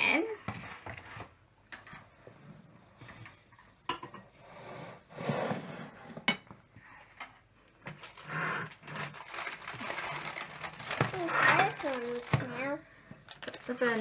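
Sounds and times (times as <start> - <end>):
metal spoon scraping plastic bowl: 10.0 - 12.5.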